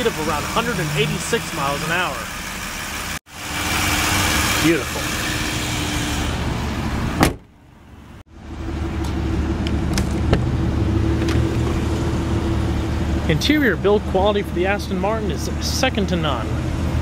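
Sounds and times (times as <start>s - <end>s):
car engine idling: 0.0s - 17.0s
car hood slamming: 7.2s - 7.5s.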